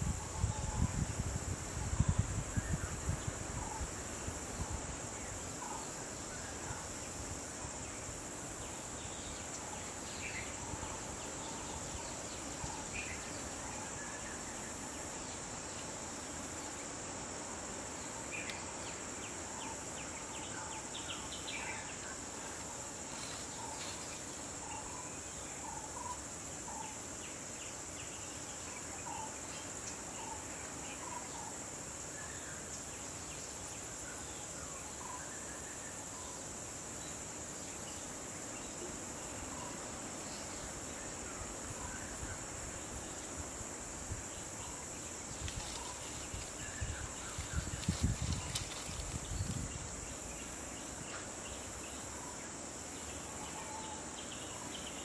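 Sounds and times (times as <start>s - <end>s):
constant even hiss: 0.0s - 55.0s
high-pitched insect chorus: 0.0s - 55.0s.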